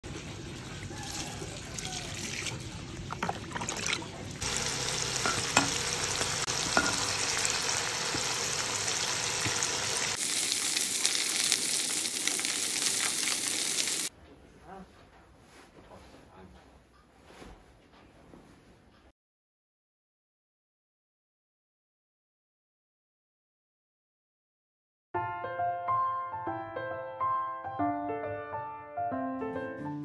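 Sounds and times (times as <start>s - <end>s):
vegetables sizzling in oil: 4.4s - 14.1s.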